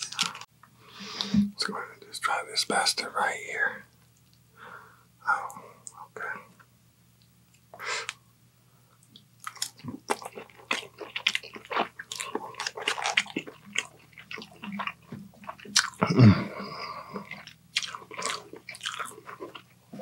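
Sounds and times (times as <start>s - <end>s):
wet chewing and biting: 9.2s - 16.2s, 17.0s - 20.0s
person humming low: 16.0s - 17.0s.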